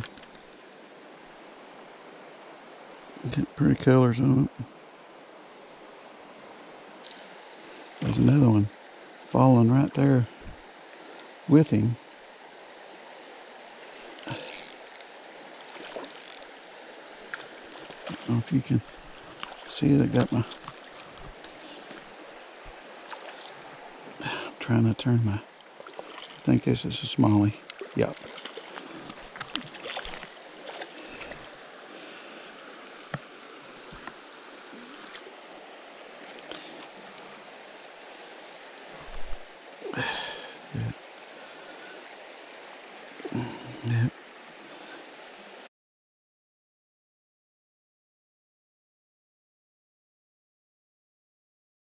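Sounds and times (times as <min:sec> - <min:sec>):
creek water running: 0:00.0 - 0:45.7
fishing reel rattling: 0:07.0 - 0:07.3, 0:14.1 - 0:15.1, 0:16.0 - 0:16.5.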